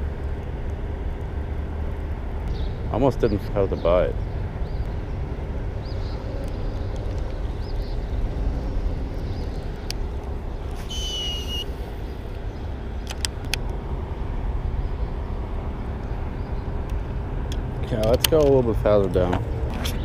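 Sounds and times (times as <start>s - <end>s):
highway traffic rumble: 0.0s - 20.0s
short high squeal: 10.8s - 11.9s
sharp clicks: 13.0s - 13.8s.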